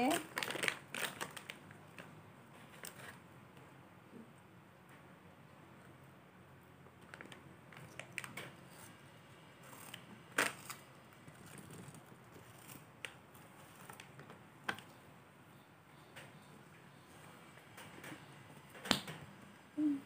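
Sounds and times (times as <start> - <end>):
foil snack bag crinkling: 0.0 - 3.2.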